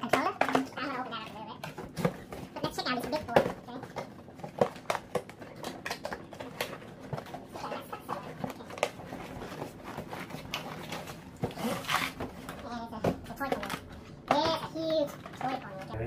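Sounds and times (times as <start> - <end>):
cardboard scraping and rustling: 8.5 - 12.7.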